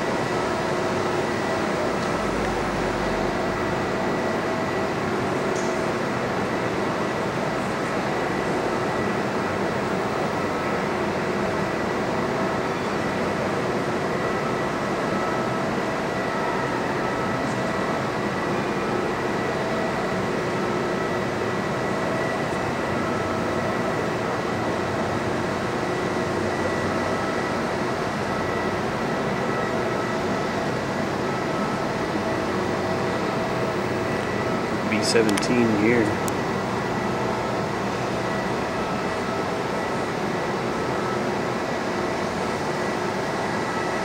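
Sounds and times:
air-handling hum and rush: 0:30.4 - 0:39.7.

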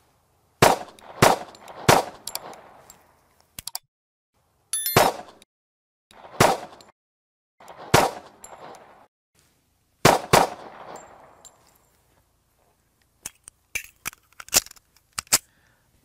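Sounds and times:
pistol shots echoing: 0:00.6 - 0:02.8, 0:04.9 - 0:05.3, 0:06.2 - 0:06.8, 0:07.7 - 0:09.1, 0:10.0 - 0:11.4.

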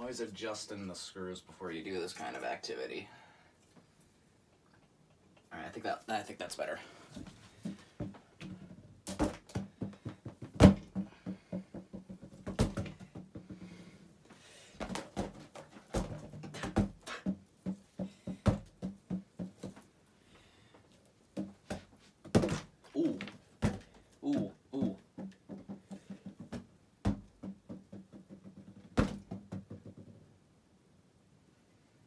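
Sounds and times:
balloon thumping against fan blades: 0:07.6 - 0:13.8, 0:21.4 - 0:30.3.

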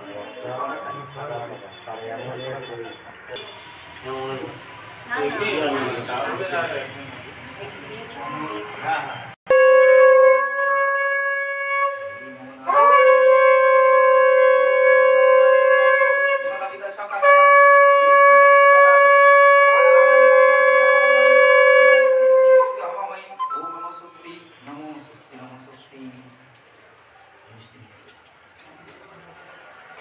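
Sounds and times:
conch shell blasts: 0:09.5 - 0:16.6, 0:17.2 - 0:24.7.

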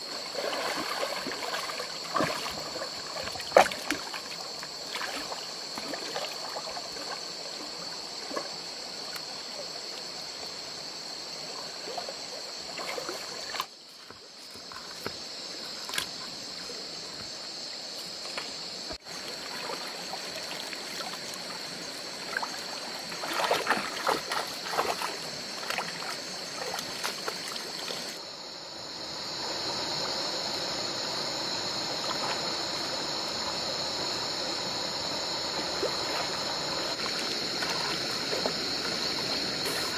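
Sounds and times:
water sloshing and splashing: 0:00.0 - 0:09.2, 0:11.6 - 0:16.4, 0:18.2 - 0:28.2, 0:30.8 - 0:39.9
water pouring through a net: 0:00.3 - 0:04.2, 0:23.2 - 0:28.0.

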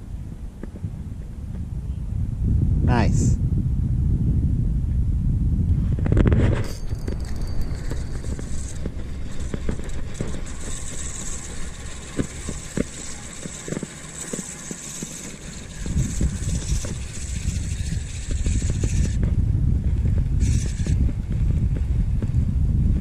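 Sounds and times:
wind on microphone: 0:00.0 - 0:23.0
fishing reel cranking: 0:06.7 - 0:19.2, 0:20.4 - 0:21.0.

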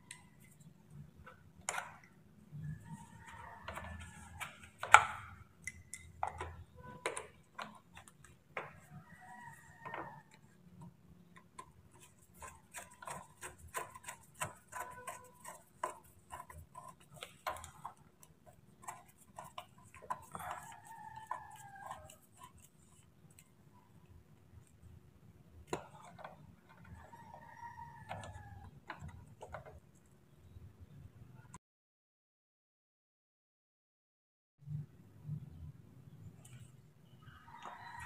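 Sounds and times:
screwdriver turning screw: 0:12.0 - 0:23.0.

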